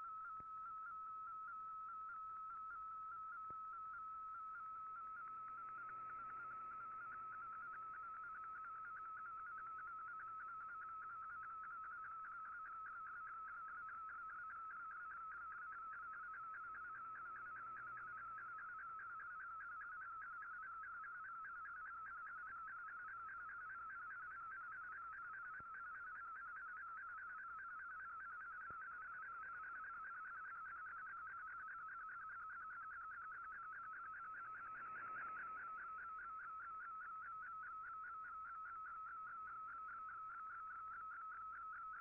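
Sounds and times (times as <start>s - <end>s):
fluttering data tone: 27.3s - 42.0s.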